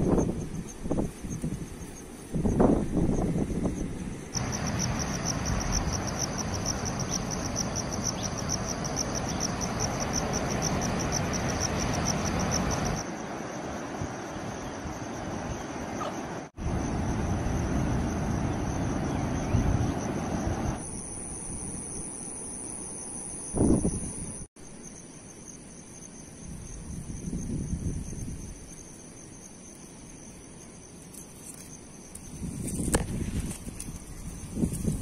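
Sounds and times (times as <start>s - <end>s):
wind rumble on microphone: 0.0s - 7.3s, 16.6s - 20.8s, 23.6s - 24.4s, 26.4s - 28.8s, 32.2s - 35.0s
insects chirring: 0.0s - 35.0s.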